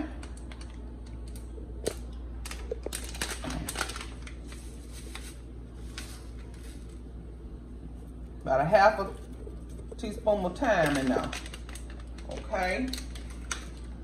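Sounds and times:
plastic packet crinkling: 0.1s - 7.1s, 9.0s - 14.0s
packet being tapped: 0.2s - 4.5s, 10.8s - 13.9s.

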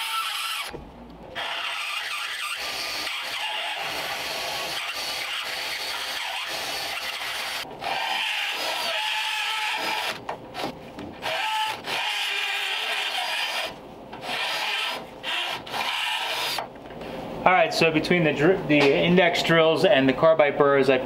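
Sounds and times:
die grinder whining and grinding: 1.4s - 10.2s.

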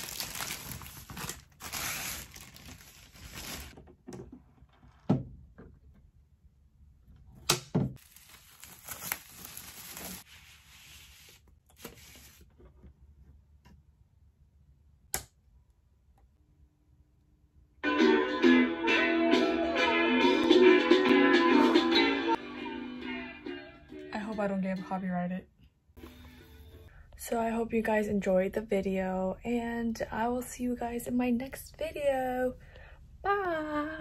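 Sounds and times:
plastic sleeves crinkling: 0.0s - 3.8s, 8.0s - 12.4s.

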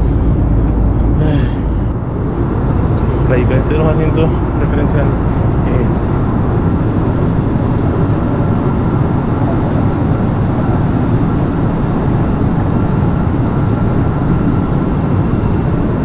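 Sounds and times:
airliner cabin drone: 0.0s - 16.0s.

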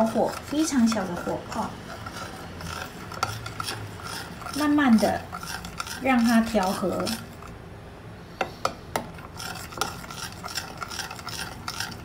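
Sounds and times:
metal spoon scraping ceramic bowl: 0.0s - 7.6s, 9.2s - 12.0s.

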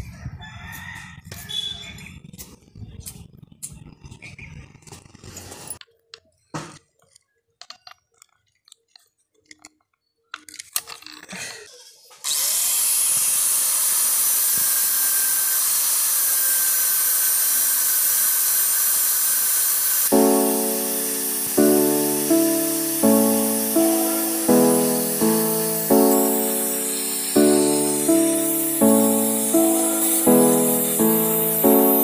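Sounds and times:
angle grinder grinding steel: 12.3s - 32.0s
music: 20.1s - 32.0s.

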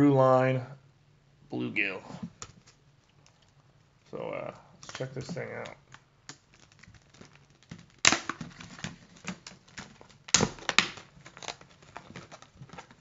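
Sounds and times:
plastic packaging crackling: 4.8s - 13.0s.

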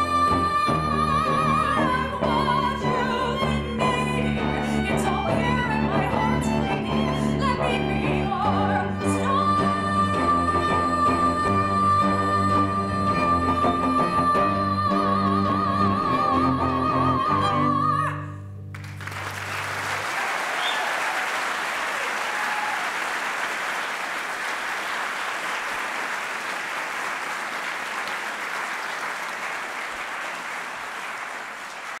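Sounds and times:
audience applauding: 18.7s - 32.0s.

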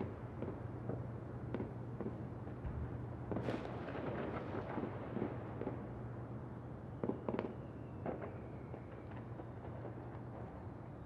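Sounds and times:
fireworks pops and crackles: 3.3s - 5.9s.

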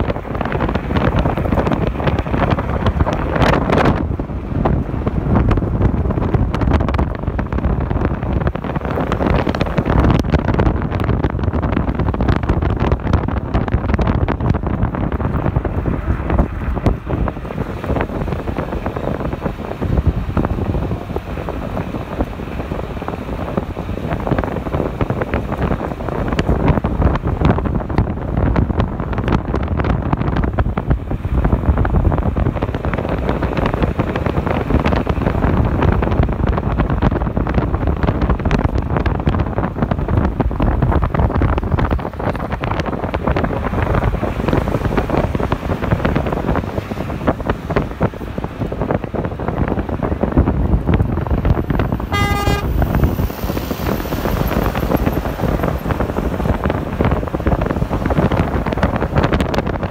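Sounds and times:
road rumble: 0.0s - 59.9s
wind buffeting microphone: 0.0s - 59.9s.

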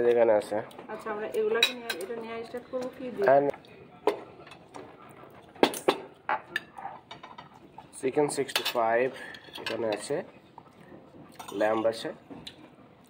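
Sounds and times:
cutlery clinking and scraping on plates: 4.0s - 12.7s.

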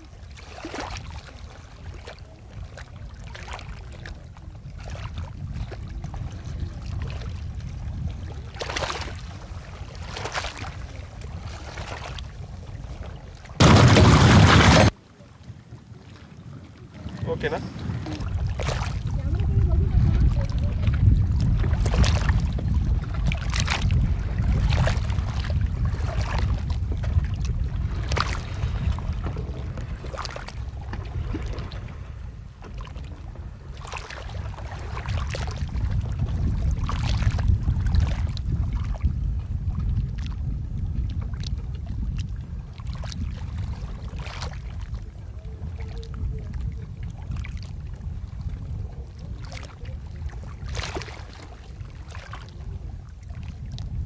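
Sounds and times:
water splashing against boat hull: 0.0s - 40.4s, 41.0s - 54.0s
wind rumble on microphone: 0.0s - 54.0s.

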